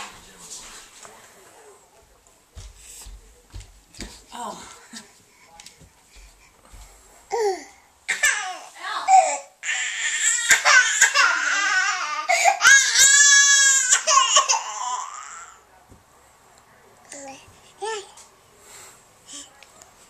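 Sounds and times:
baby crying: 7.3 - 15.6.

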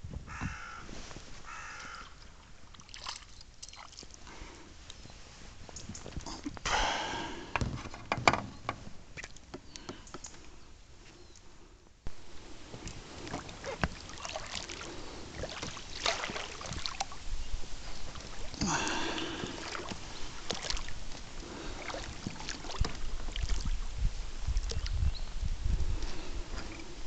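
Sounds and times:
oars knocking against hull: 0.3 - 0.6, 6.7 - 10.2, 12.8 - 14.4
oar splashes: 1.6 - 4.7, 12.3 - 25.1
boat creaking: 6.4 - 10.2, 12.8 - 14.7.

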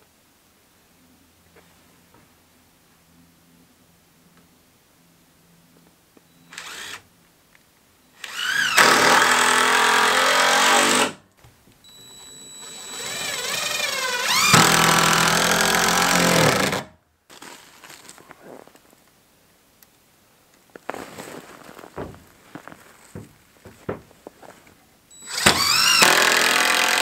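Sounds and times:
circular saw cutting plywood: 8.2 - 11.2, 12.6 - 16.9, 25.2 - 27.0.

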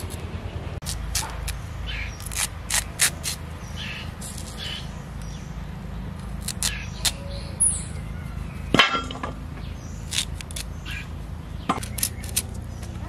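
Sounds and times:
crisp cuts of taro on blade: 0.0 - 3.5, 6.2 - 7.2, 10.0 - 11.1, 11.8 - 13.0.

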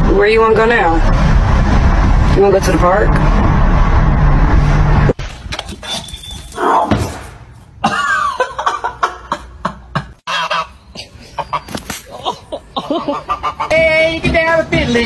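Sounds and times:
goose honking: 10.3 - 10.8, 12.8 - 13.9.

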